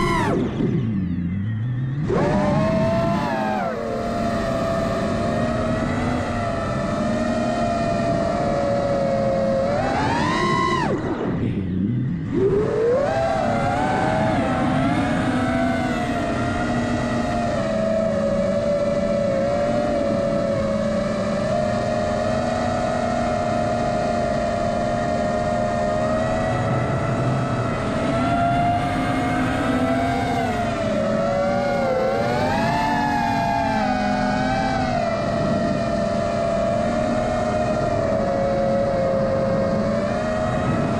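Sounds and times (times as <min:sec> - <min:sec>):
model aircraft motor whining: 0:24.3 - 0:40.9.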